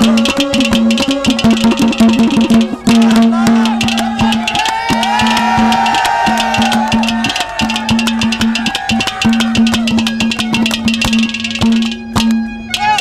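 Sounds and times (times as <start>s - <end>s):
fast percussion strokes: 0.0s - 13.0s
harmonium melody: 9.8s - 13.0s.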